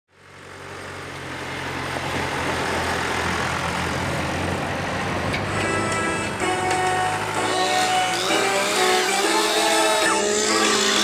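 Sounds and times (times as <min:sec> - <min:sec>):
tractor engine running: 0:00.1 - 0:11.0.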